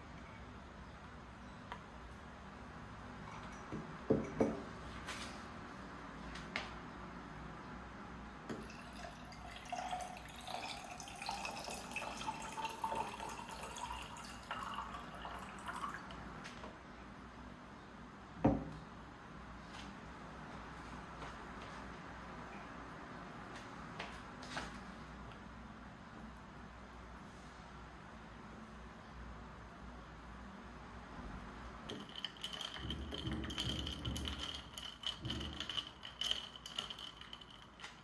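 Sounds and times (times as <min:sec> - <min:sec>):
water pouring into container: 0:08.6 - 0:16.2.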